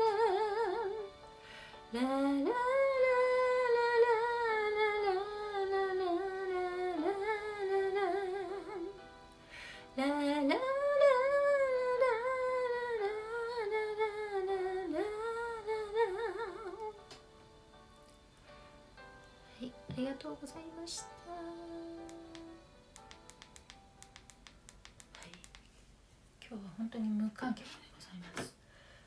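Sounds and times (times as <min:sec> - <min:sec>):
woman singing wordless melody: 0:00.0 - 0:17.2, 0:19.5 - 0:23.2
short breath: 0:01.4 - 0:01.8, 0:09.5 - 0:09.9, 0:28.7 - 0:29.0.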